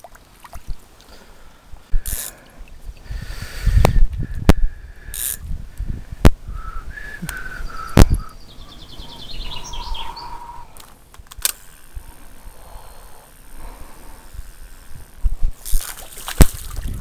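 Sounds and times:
small songbirds chirping: 7.1s - 10.8s.

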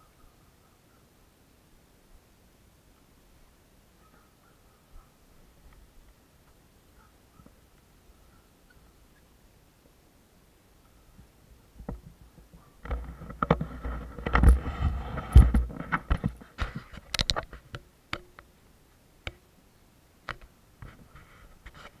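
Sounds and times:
camera handling rubbing: 12.8s - 17.7s.

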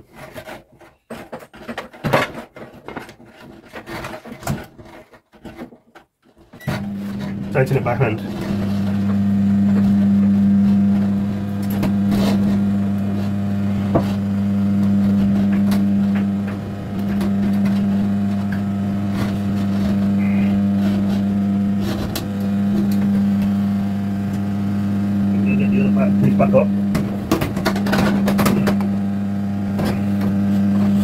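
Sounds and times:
low hum: 6.6s - 31.0s.

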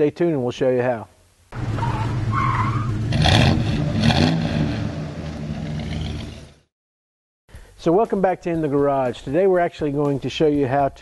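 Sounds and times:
tire squeal: 1.6s - 3.4s.

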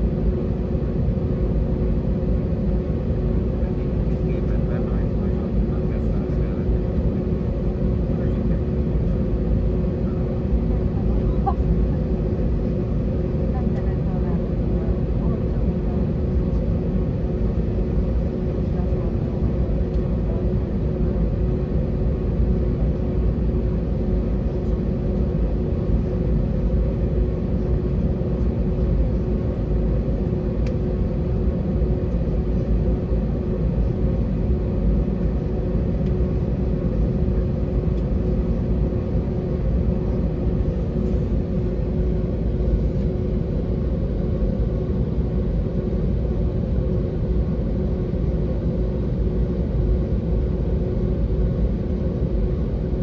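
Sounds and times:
jet engines rumbling in cabin: 0.0s - 53.0s
steady hum: 0.0s - 53.0s.

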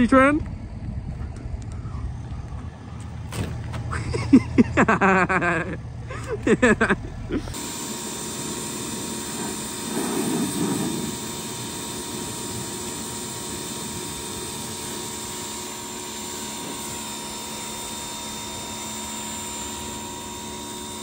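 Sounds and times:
pressure washer spraying: 7.5s - 21.0s.

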